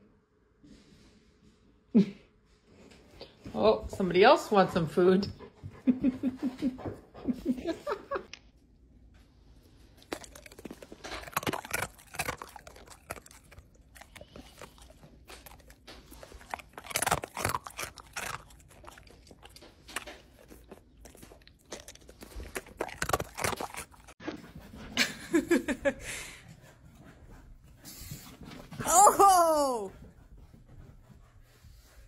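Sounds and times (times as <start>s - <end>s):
dog crunching food: 9.8s - 24.2s.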